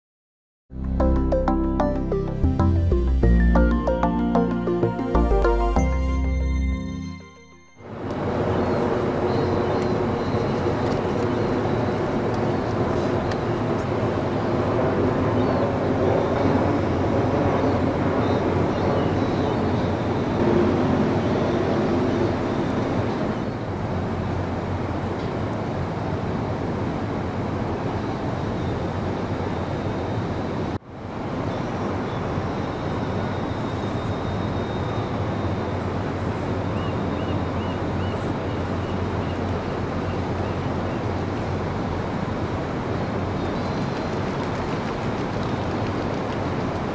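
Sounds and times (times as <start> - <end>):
humming tone: 0.7 - 10.5
ferry engines droning: 0.8 - 27.5
wind: 0.8 - 46.9
water noise: 41.0 - 46.9.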